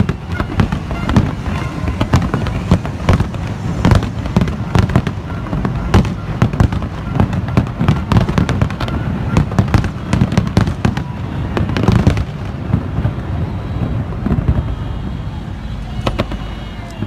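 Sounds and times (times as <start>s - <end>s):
firework shells bursting: 0.0s - 11.0s
continuous rumble: 0.0s - 17.0s.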